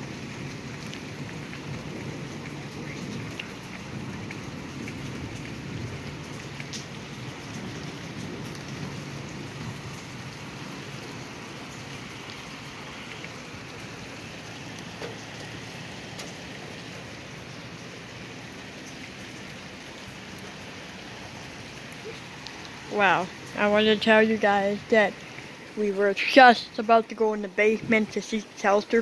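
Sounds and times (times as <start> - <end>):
low thunder rumble: 0.0 - 20.5
raindrops tapping close by: 0.0 - 29.0
steady rain: 0.0 - 29.0.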